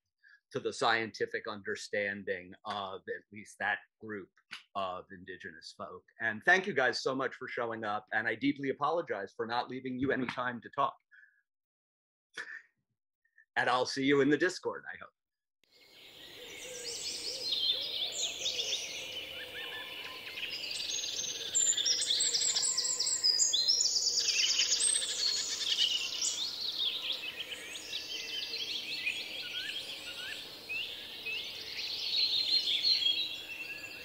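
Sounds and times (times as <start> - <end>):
songbirds chirping and trilling: 15.8 - 34.0.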